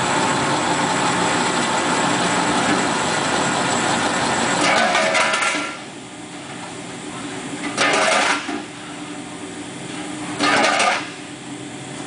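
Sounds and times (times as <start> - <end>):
machine motor hum: 0.0 - 8.9.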